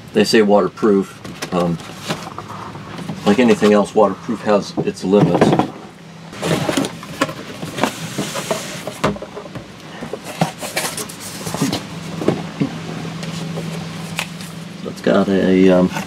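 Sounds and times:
cardboard sliding on cardboard: 7.7s - 9.0s.

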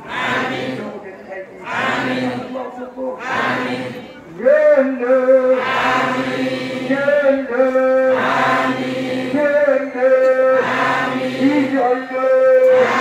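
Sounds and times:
voices chanting long notes: 0.0s - 0.8s, 1.7s - 2.4s, 3.2s - 4.0s, 5.2s - 13.0s.

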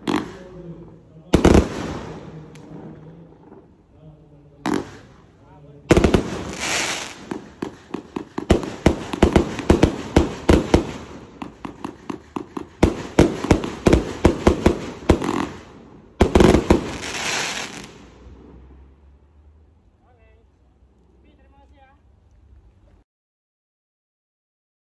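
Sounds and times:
fireworks banging: 0.0s - 19.1s.

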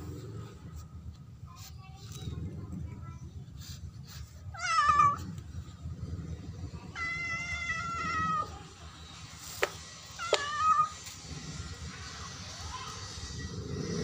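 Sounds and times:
cat meowing: 4.5s - 5.3s, 6.9s - 8.5s, 10.2s - 11.0s.

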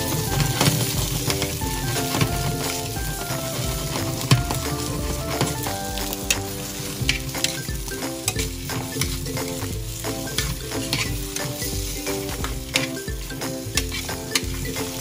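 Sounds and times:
potatoes sizzling in a pan: 0.0s - 15.0s
metal tongs scraping a pan: 6.3s - 15.0s.

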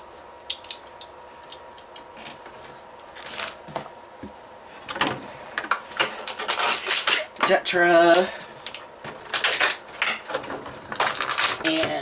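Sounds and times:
packaging rustling: 3.1s - 3.9s, 8.6s - 11.8s.

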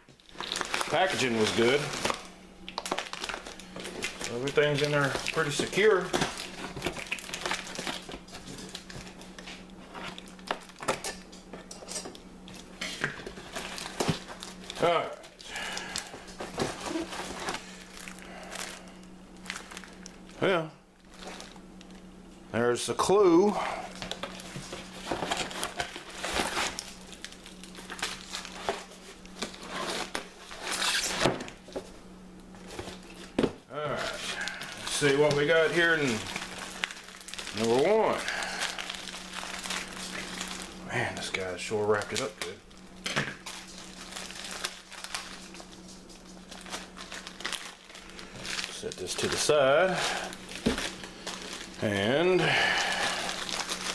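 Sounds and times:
wrapping rustling and crinkling: 0.0s - 53.9s
paper and cardboard rustling: 0.3s - 2.2s, 15.9s - 18.8s, 24.0s - 27.0s.

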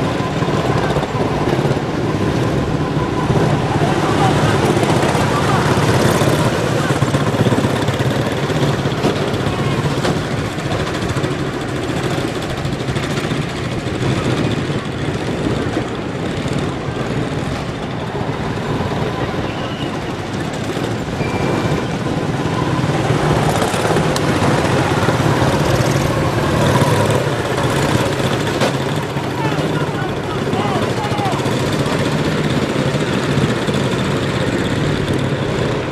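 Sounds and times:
small race car engines buzzing: 0.0s - 35.9s.

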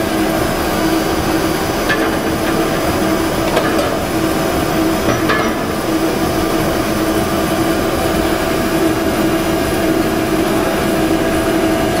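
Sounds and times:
mixer motor humming: 0.5s - 8.9s.

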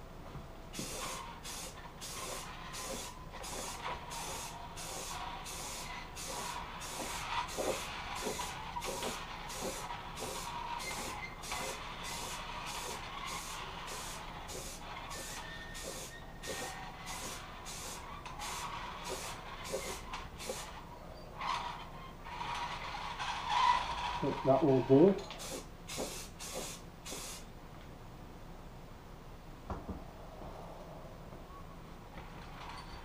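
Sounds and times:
aerosol spray can hissing: 0.8s - 20.7s, 25.4s - 27.5s.

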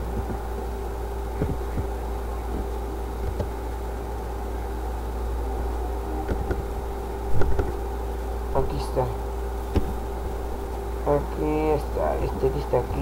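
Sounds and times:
electrical hum and hiss: 0.0s - 13.0s.

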